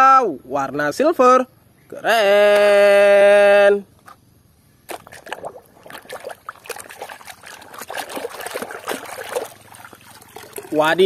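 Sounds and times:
water trickling and splashing: 4.9 - 11.0.

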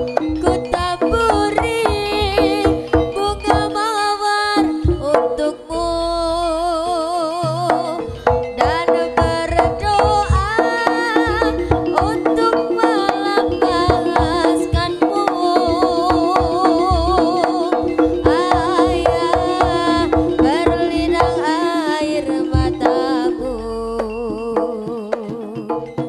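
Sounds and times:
steady held tone: 0.0 - 26.0
wavering sliding melody: 0.0 - 26.0
rapid drum strokes: 7.6 - 23.4.

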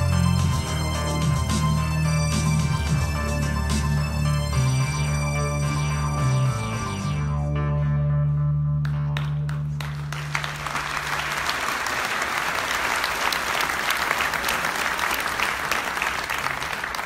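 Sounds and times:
held low music chord: 0.0 - 10.1
audience applauding: 8.8 - 17.0.

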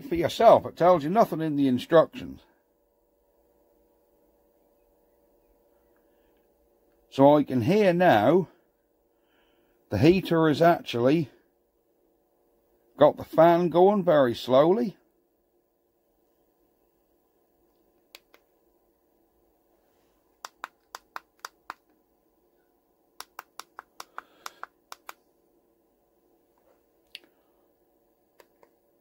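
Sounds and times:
heater fan humming: 0.0 - 29.0
sharp clicks: 20.4 - 22.0, 23.2 - 25.2.

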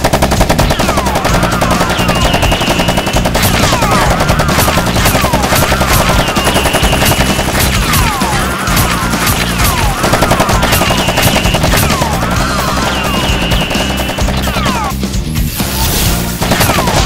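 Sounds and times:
automatic gunfire: 0.0 - 14.8
swooping whines: 5.1 - 14.9.

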